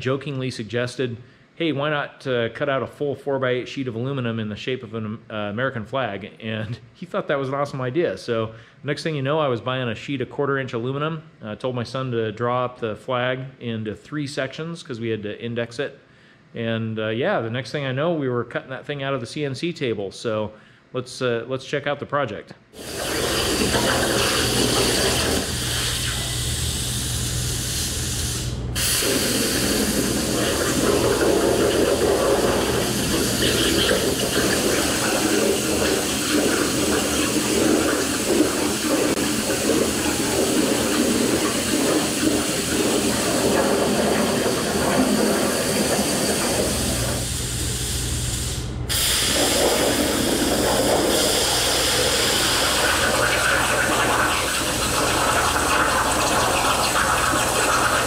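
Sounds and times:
plasma torch hissing: 22.8s - 58.0s.

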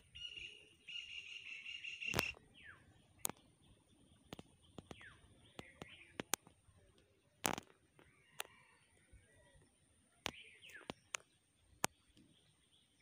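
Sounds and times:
sharp clicks: 4.3s - 8.5s.

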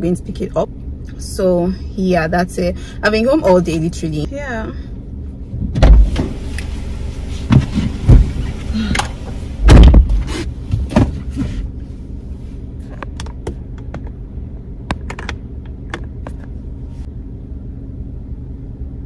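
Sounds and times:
car engine idling: 0.0s - 19.0s
car door shutting: 5.6s - 11.7s.

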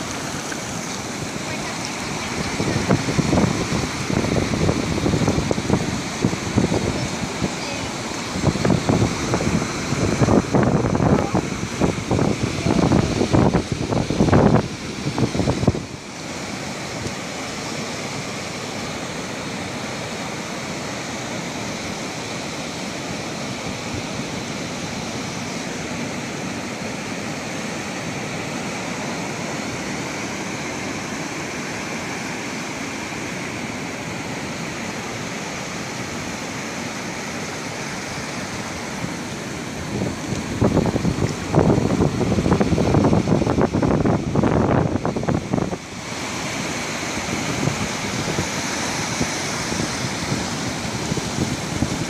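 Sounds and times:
wind buffeting microphone: 0.0s - 16.0s, 38.5s - 46.2s, 47.1s - 52.0s
ocean surf breaking: 0.0s - 52.0s.

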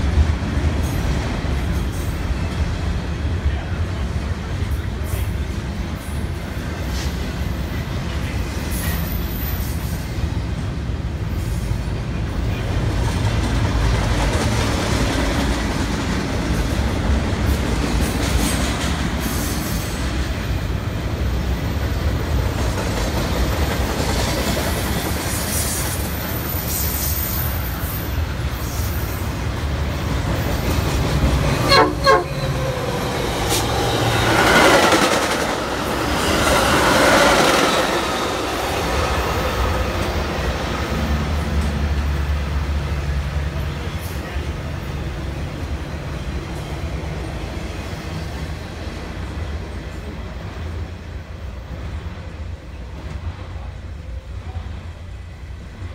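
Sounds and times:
another train passing: 0.0s - 55.9s
freight train wheels rumbling on rail: 0.0s - 55.9s
train horn blasts: 31.6s - 32.7s.

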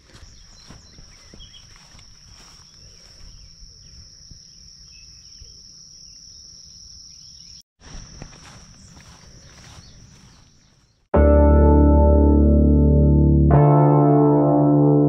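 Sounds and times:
insects trilling: 0.0s - 11.0s.

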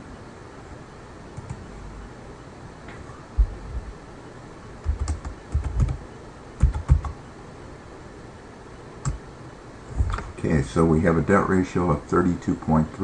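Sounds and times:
keyboard typing: 4.8s - 6.0s, 6.6s - 7.2s.

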